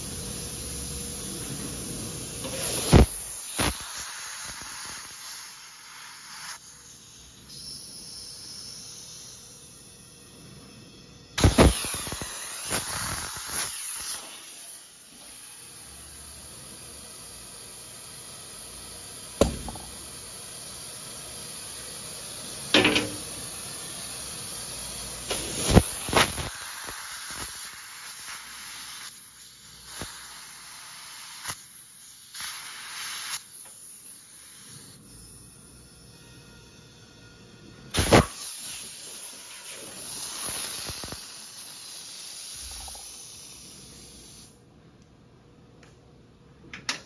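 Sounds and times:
compressed air hissing: 0.0s - 9.8s, 11.4s - 35.6s, 37.9s - 44.6s
sharp knocks and pops: 19.4s - 20.0s.

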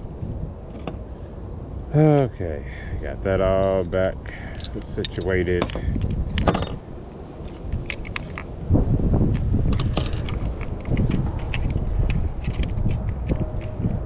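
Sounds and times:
clicks and rattles of parts: 0.7s - 1.1s, 3.5s - 8.6s, 9.3s - 14.0s.

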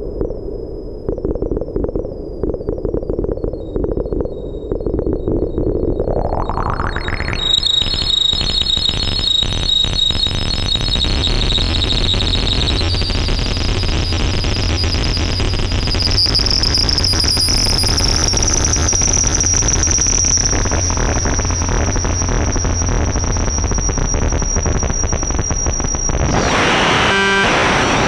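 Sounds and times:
low hum: 0.0s - 8.7s, 14.4s - 28.0s
crackling noisy wash: 0.0s - 9.8s, 11.2s - 28.0s
synthesizer whistling tone: 4.5s - 12.9s, 15.0s - 28.0s.

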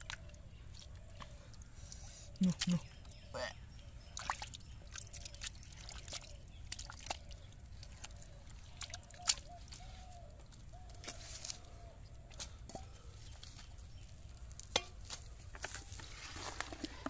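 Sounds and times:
hands squelching through mud: 4.0s - 17.0s
wet slaps and drips: 4.2s - 11.2s.

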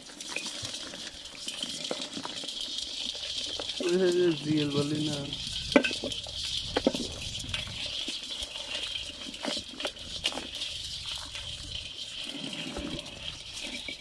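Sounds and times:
shells scratching and clicking: 0.0s - 14.0s
steady high hiss: 3.8s - 6.2s.

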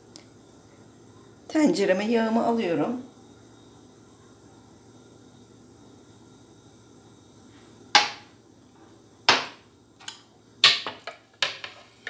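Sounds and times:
kitchenware clinks and knocks: 10.7s - 12.0s.

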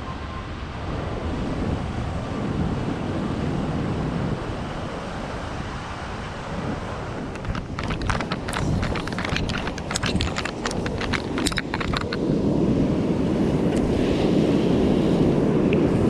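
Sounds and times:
ocean surf washing on beach: 0.0s - 16.0s
wind buffeting microphone: 0.8s - 16.0s
sharp clicks: 7.3s - 12.2s.

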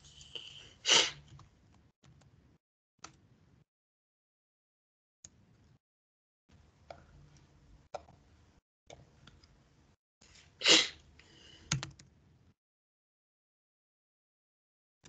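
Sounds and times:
keyboard and mouse clicks: 11.7s - 12.1s.

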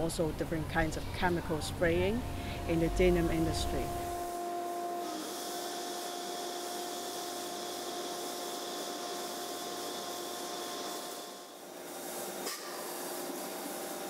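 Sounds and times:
constant humming tones: 0.0s - 6.8s
machinery and ventilation hiss: 0.0s - 14.0s.

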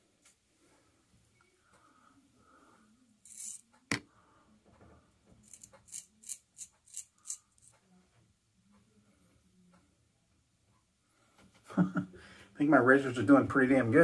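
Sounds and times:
razor scraping whiskers: 3.2s - 3.7s, 5.4s - 7.7s.

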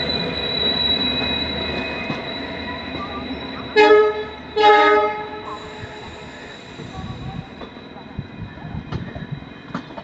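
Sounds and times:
train horn blast: 3.8s - 5.5s.

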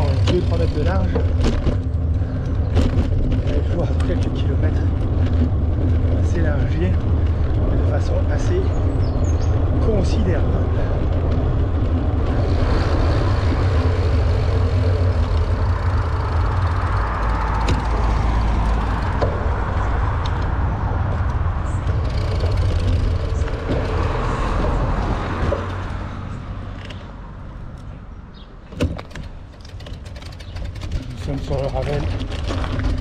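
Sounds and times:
wind buffeting microphone: 0.0s - 27.4s
bicycle tyre and road noise: 0.0s - 33.0s.

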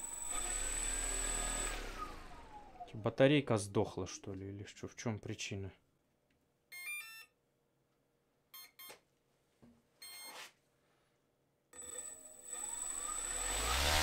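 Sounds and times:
motor spinning up propeller: 0.0s - 2.9s, 11.8s - 14.0s.

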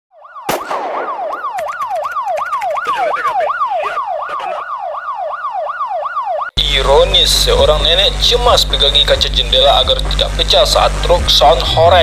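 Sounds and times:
electronic siren yelping: 0.1s - 6.6s.

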